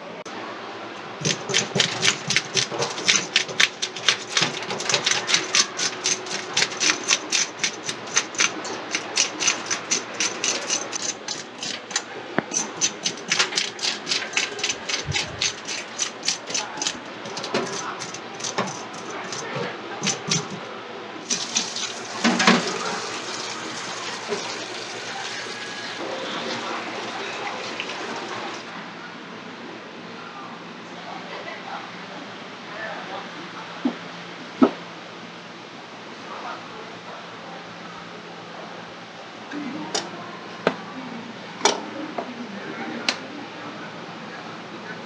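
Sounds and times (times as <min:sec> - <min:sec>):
fish scaler rasping scrapes: 0:01.2 - 0:20.6.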